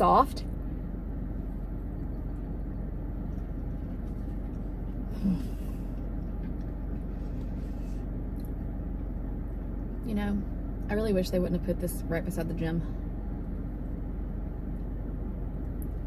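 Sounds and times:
car interior rumble: 0.0s - 16.0s
person humming mm: 5.1s - 5.6s.

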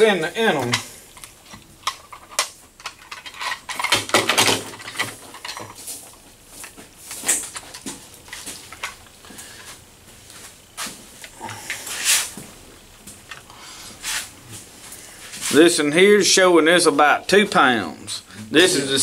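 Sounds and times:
handling clicks scrapes and rustles: 0.6s - 12.5s.

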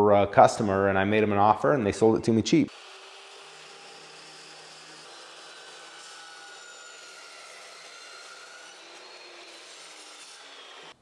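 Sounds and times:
metal chop saw cutting steel: 2.7s - 11.0s.

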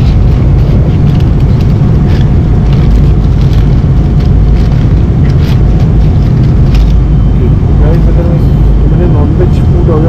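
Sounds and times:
aluminium foil crinkling: 0.0s - 7.1s
airliner cabin roar: 0.0s - 10.0s.

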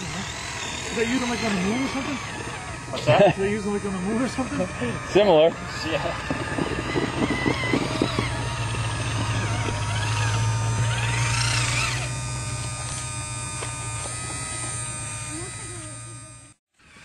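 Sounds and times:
hydraulic pump whine: 0.0s - 17.0s
rc crawler motor hum: 0.0s - 17.0s.

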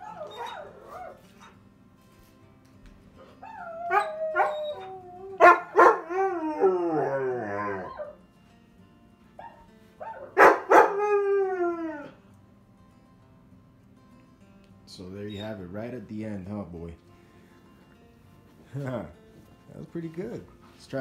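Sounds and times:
dog howls through tv speakers: 0.0s - 1.3s, 3.4s - 8.2s, 9.5s - 12.2s.

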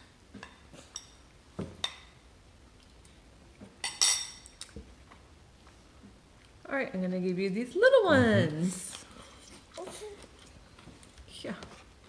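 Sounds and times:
tableware taps and clinks: 3.8s - 4.5s.

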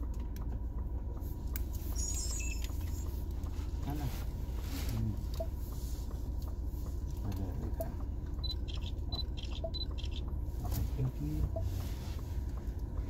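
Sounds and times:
diesel engine idling: 0.0s - 13.0s
short high electronic beeps: 2.0s - 2.8s.

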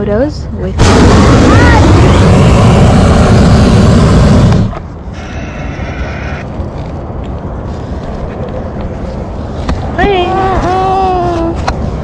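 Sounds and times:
low rumble: 0.5s - 12.0s
propane burner roaring: 0.8s - 6.4s.

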